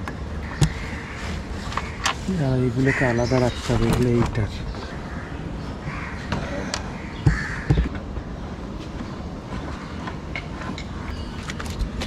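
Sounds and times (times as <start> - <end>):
crows cawing: 0.4 - 3.6, 4.8 - 8.0
sharp knocks: 7.2 - 8.1.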